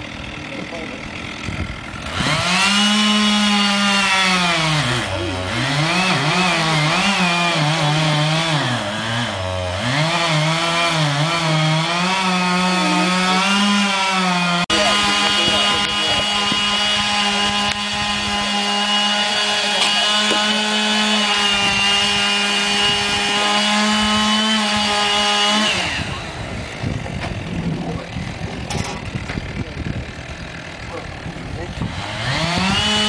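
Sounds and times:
chainsaw running at high revs: 0.0 - 33.0.

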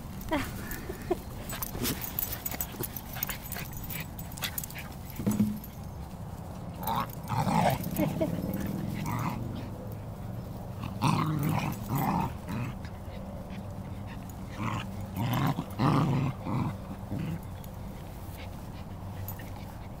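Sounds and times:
dogs barking and growling: 6.8 - 20.0.

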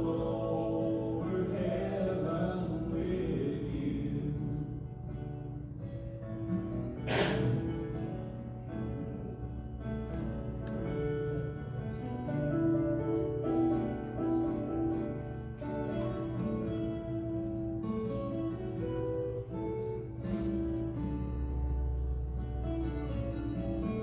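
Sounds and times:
instrumental music with held notes: 4.9 - 24.0.

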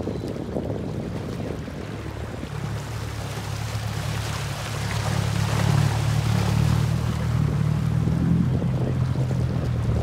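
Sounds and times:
boat engine humming: 0.0 - 10.0
water rushing along hull: 0.0 - 10.0.

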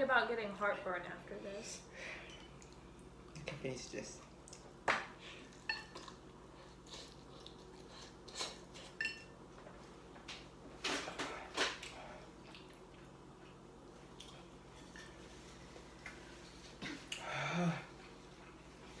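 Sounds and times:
eating noises: 5.4 - 8.8.

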